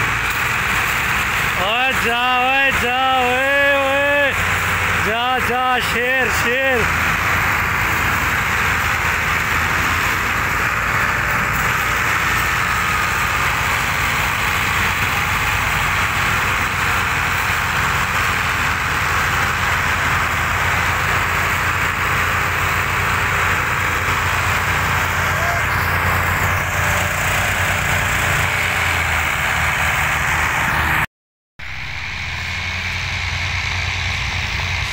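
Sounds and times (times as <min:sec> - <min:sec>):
tractor diesel engines under load: 0:00.0 - 0:34.9.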